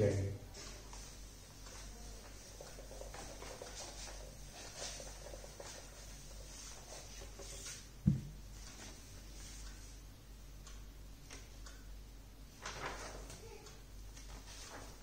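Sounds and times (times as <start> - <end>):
duster rubbing whiteboard: 0.6 - 7.9.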